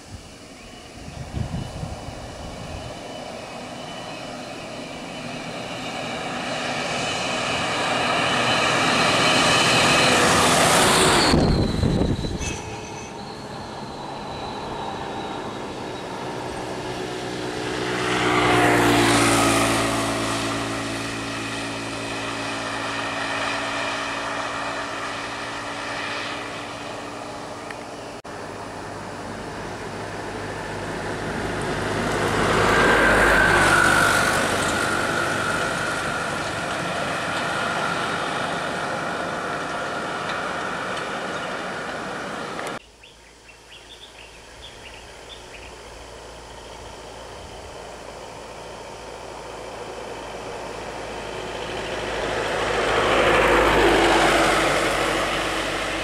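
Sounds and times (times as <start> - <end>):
vehicles passing on a road: 0.0 - 56.0.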